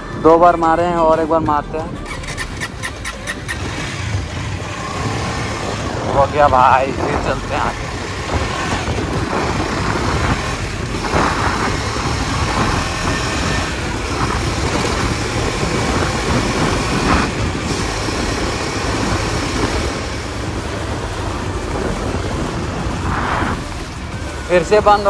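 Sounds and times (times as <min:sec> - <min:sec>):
motorcycle engine running: 0:00.0 - 0:25.0
wind and road noise: 0:00.0 - 0:25.0.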